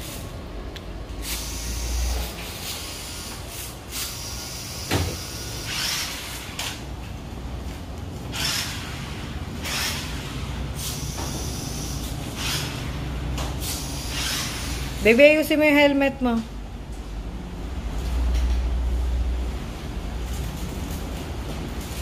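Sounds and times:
toy truck electric motor: 1.2 - 6.8, 8.3 - 13.0, 13.6 - 15.0.

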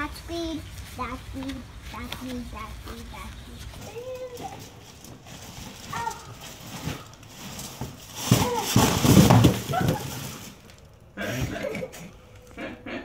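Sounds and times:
cardboard boxes crashing on tile: 5.4 - 10.7.

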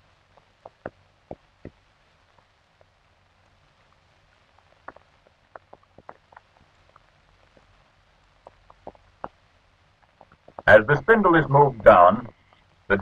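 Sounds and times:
film crackle clicks and pops: 0.0 - 12.9
low hiss: 0.0 - 13.0.

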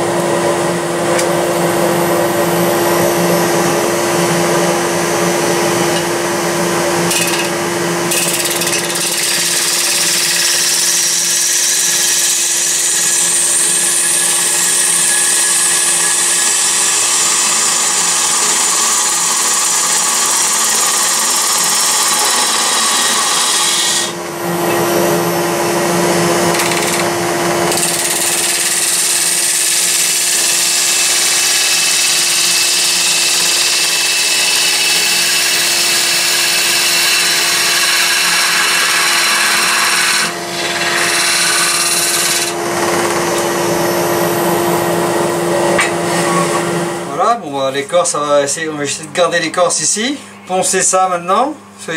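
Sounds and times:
lathe motor humming: 0.0 - 47.1
chisel hissing on spinning wood: 7.1 - 24.2, 27.7 - 42.6.

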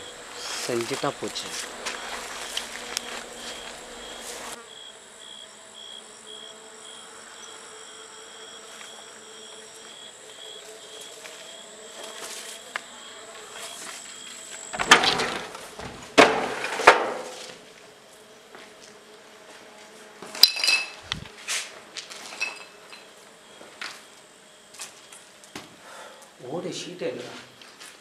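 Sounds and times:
thin steady whine: 0.0 - 18.9
insects trilling: 0.0 - 19.2, 20.3 - 27.8
sharp clattering knocks: 14.7 - 17.2.

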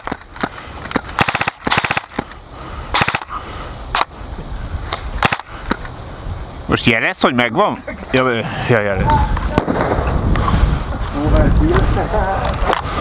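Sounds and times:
airsoft guns firing: 0.0 - 4.1, 5.2 - 5.8, 9.5 - 10.1.

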